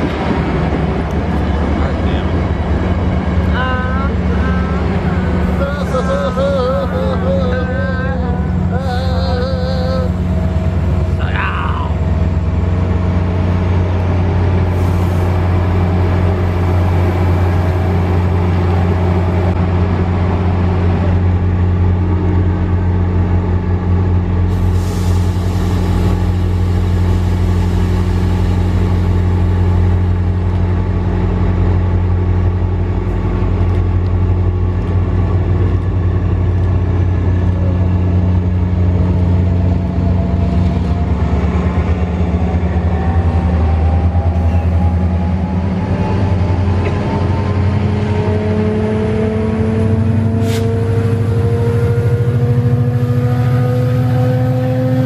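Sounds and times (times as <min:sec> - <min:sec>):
diesel locomotive droning: 0:00.0 - 0:55.0
rising whine: 0:00.0 - 0:55.0
short hisses: 0:24.5 - 0:26.0, 0:50.4 - 0:50.7.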